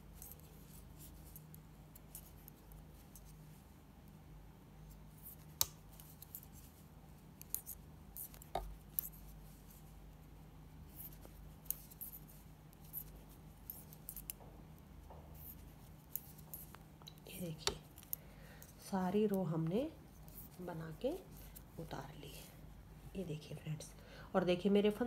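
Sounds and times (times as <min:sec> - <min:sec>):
faint steady hum: 0:00.0 - 0:25.0
knitting needles clicking: 0:07.4 - 0:09.2.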